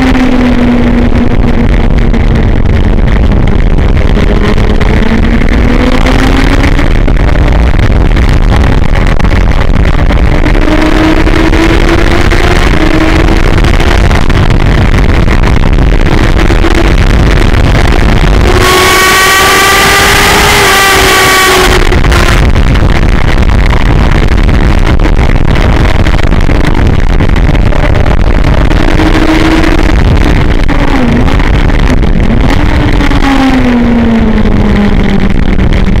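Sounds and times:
motorcycle engine revving: 0.0s - 36.0s
wind noise on microphone: 0.0s - 36.0s.

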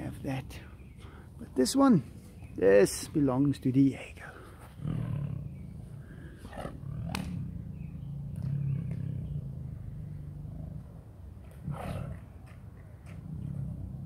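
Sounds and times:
tiger growling: 4.7s - 14.0s
sharp snap: 7.0s - 7.4s.

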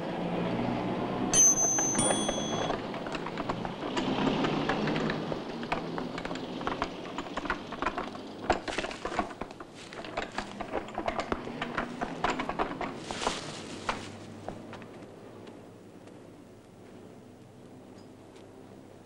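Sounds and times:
wooden handcart rattling: 1.4s - 15.1s
footsteps on dirt path: 8.6s - 10.7s, 11.4s - 16.2s.

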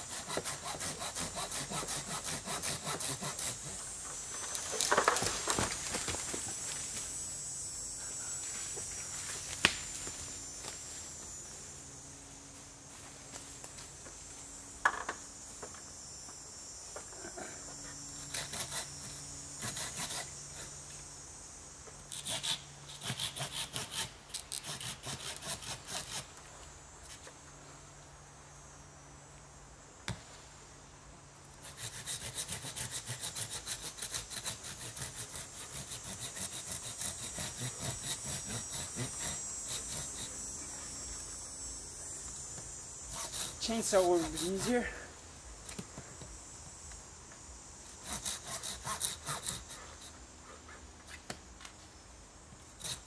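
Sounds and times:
handsaw cutting tree trunk: 0.0s - 3.8s, 18.2s - 20.7s, 22.1s - 26.3s, 31.6s - 40.4s, 43.1s - 44.9s, 47.9s - 50.1s, 52.8s - 53.0s
insects humming: 0.0s - 53.0s.

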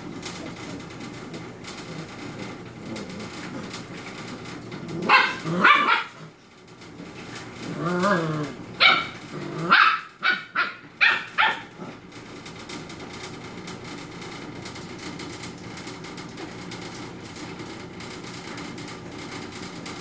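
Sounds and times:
puppy growling: 0.3s - 6.4s, 7.3s - 12.1s
puppies yapping: 5.0s - 6.3s, 8.1s - 11.9s.

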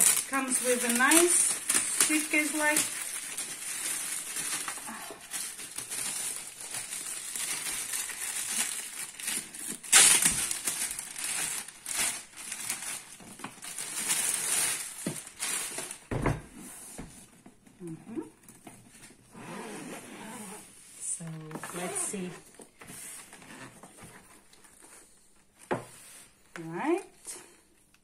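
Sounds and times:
plastic bag crinkling: 0.0s - 16.1s.

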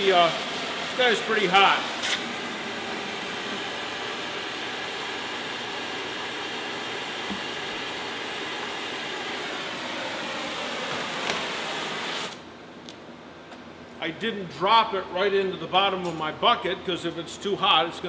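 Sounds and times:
gas torch hissing: 0.0s - 12.4s.

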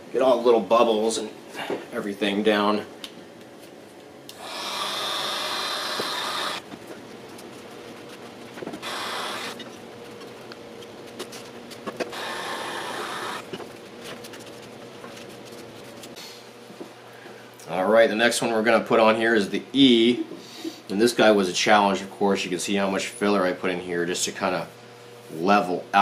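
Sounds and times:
heat gun blowing: 4.3s - 6.6s, 8.8s - 9.6s, 12.1s - 13.5s.

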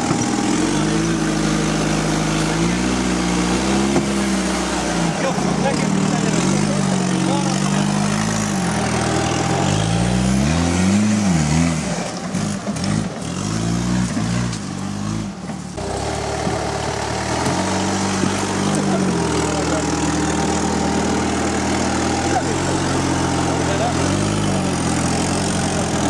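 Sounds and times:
off-road buggy engine revving: 0.0s - 26.0s.

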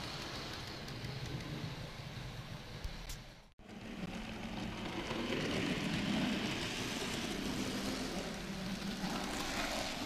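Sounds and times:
wheels rolling over rails: 3.7s - 10.0s.

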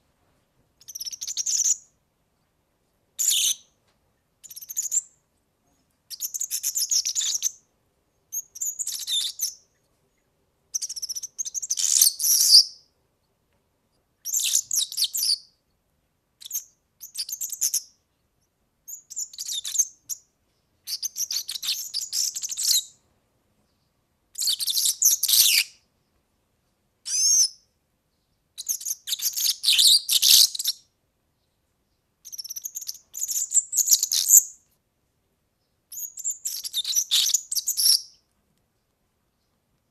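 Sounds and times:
bird singing high fluttering song: 0.8s - 1.9s, 4.4s - 5.2s, 6.1s - 7.6s, 8.3s - 12.8s, 14.2s - 15.5s, 18.9s - 23.0s, 23.7s - 25.8s, 28.2s - 34.6s, 35.6s - 38.2s.

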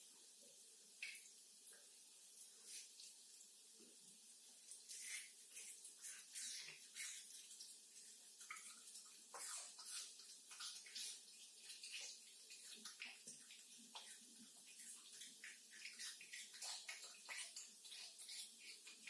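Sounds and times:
cat chewing wetly: 4.7s - 19.0s.

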